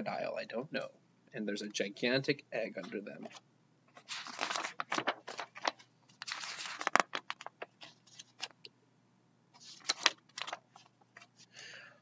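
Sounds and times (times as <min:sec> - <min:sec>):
book pages turning: 0:02.8 - 0:08.6, 0:09.6 - 0:11.4
paper rustling and snapping: 0:03.9 - 0:08.6, 0:09.6 - 0:11.3.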